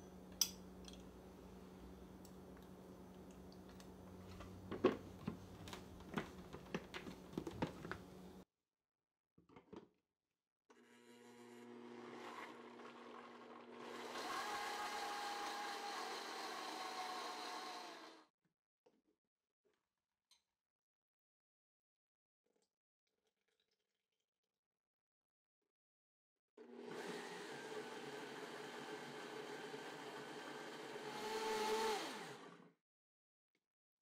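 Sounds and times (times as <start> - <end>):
blender running: 10.7 - 18.3, 26.6 - 32.8.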